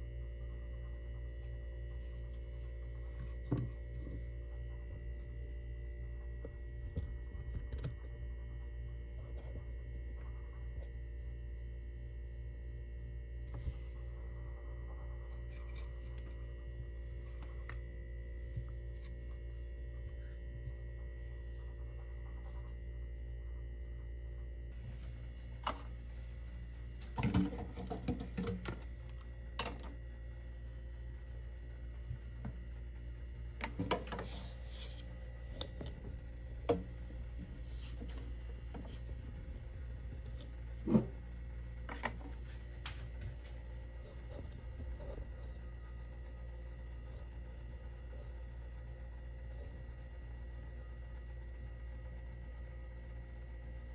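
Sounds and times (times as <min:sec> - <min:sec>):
steady low hum: 0:00.0 - 0:53.9
faint scratching and rubbing: 0:01.6 - 0:05.8, 0:33.9 - 0:36.4, 0:37.2 - 0:41.4.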